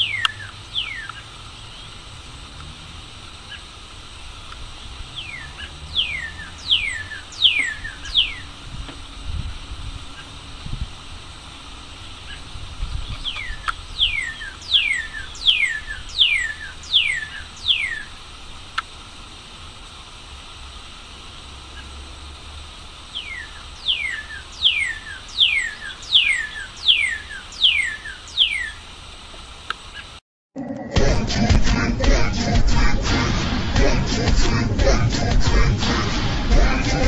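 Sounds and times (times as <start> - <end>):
bird singing down-slurred whistles: 0.0 - 1.9, 5.2 - 8.5, 13.0 - 18.2, 23.2 - 28.8
faint background hiss: 0.0 - 30.2.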